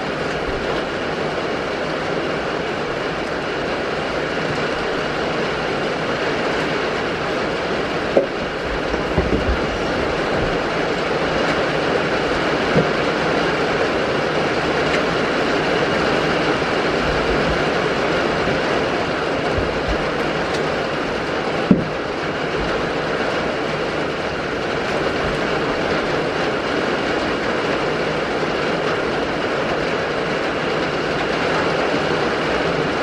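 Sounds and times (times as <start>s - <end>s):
rain on a roof: 0.0s - 33.0s
sharp knocks: 8.1s - 10.6s, 21.6s - 22.7s.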